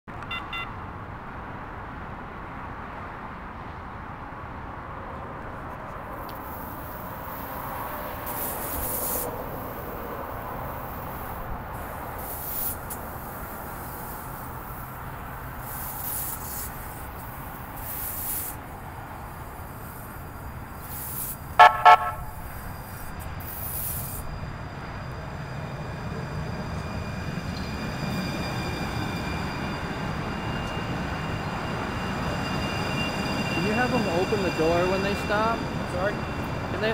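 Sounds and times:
light rail car running on track: 0:00.1 - 0:36.9
faint high whine: 0:20.4 - 0:36.9
short horn toots: 0:21.6 - 0:22.4.

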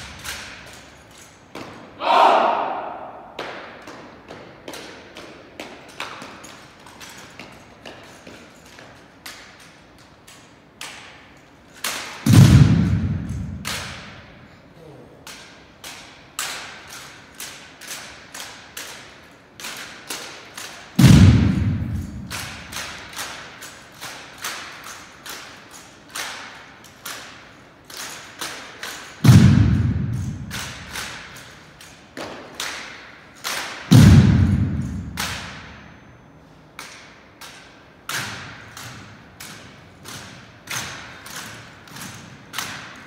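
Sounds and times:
rifles thudding on floor: 0:28.8 - 0:31.4.

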